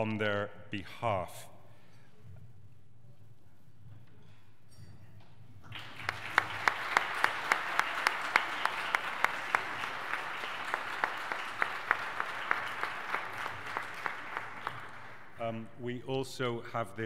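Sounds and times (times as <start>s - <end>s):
crowd clapping: 5.6s - 15.4s
loud close claps: 5.6s - 15.4s.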